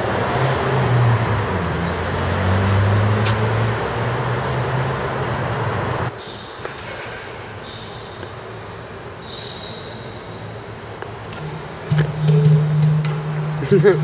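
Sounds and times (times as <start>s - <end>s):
vehicle engine hum with road noise: 0.0s - 6.2s.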